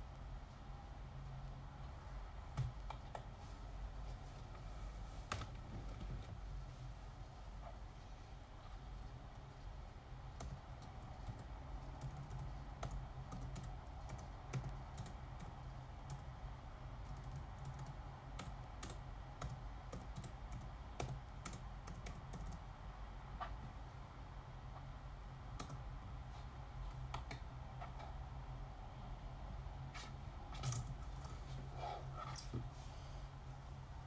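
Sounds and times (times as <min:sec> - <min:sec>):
low steady hum: 0:00.0 - 0:34.0
keyboard typing: 0:10.4 - 0:16.3, 0:17.0 - 0:22.6, 0:25.6 - 0:25.8.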